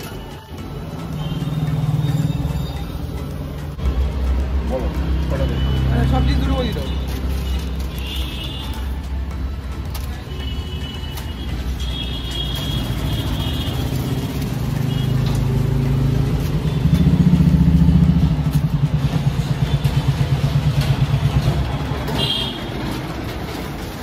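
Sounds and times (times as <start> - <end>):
vehicle engine rumbling: 12.4 - 24.0.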